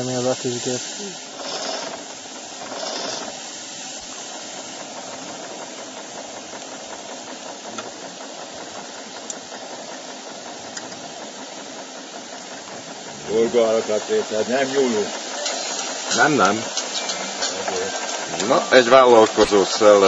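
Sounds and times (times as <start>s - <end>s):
gush of steam: 0.0s - 20.0s
steam hissing: 0.0s - 20.0s.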